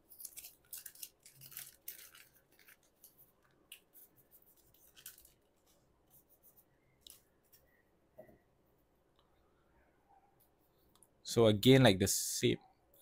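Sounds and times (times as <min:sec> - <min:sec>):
trading cards rustling: 0:00.1 - 0:05.8.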